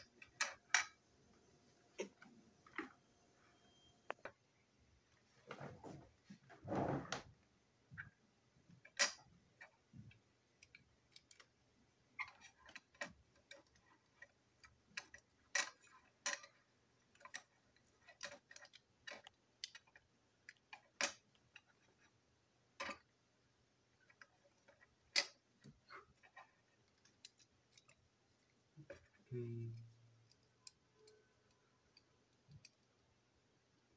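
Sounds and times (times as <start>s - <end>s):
small plastic parts clicking: 8.7s - 22.2s, 24.0s - 33.9s.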